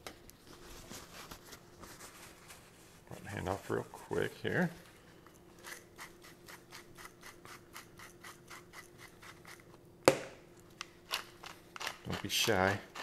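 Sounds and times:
pepper grinder crunching: 11.1 - 13.0.

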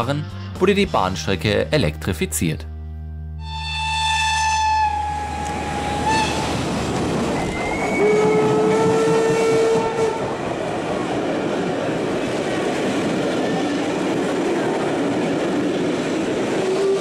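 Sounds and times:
train horn: 3.4 - 6.6, 7.4 - 10.4, 16.6 - 17.0
train wheels clattering on rails: 6.4 - 17.0.

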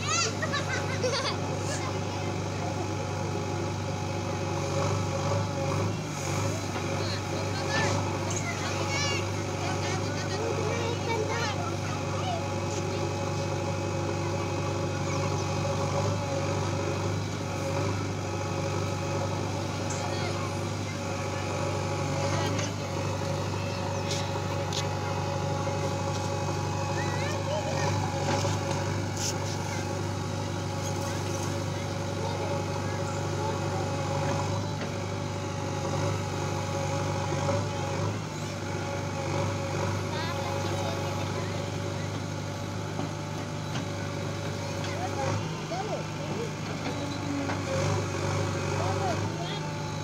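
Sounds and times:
diesel engine running: 0.0 - 50.0
digger arm digging earth: 14.0 - 50.0.

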